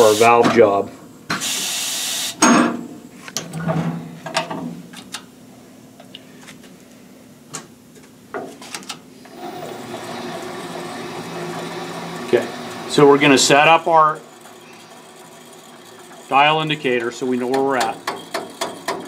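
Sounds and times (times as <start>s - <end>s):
burst of hiss: 1.4s - 2.4s
machine running: 9.3s - 19.0s.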